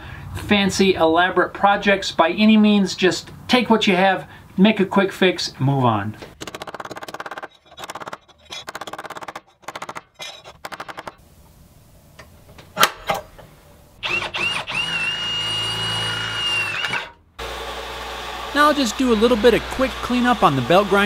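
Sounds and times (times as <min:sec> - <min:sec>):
belt grinder running: 0:14.0 - 0:21.0
cordless drill boring metal: 0:14.0 - 0:21.0.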